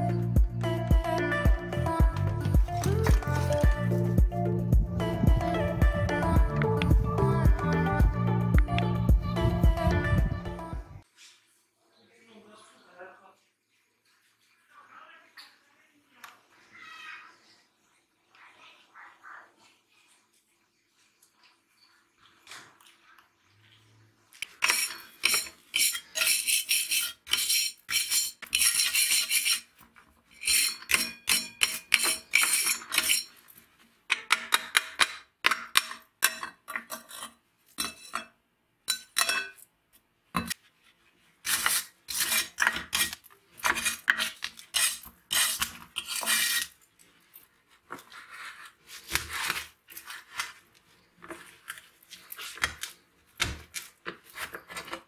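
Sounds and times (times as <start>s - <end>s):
metal clinking and scraping: 24.5s - 29.7s, 30.3s - 33.5s, 35.8s - 38.3s.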